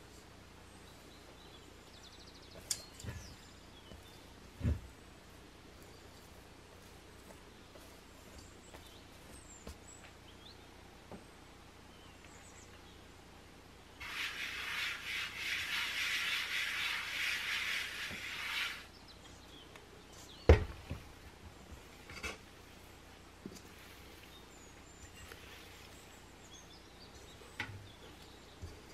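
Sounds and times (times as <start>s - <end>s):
hand sweeping flour on board: 14.0s - 18.9s.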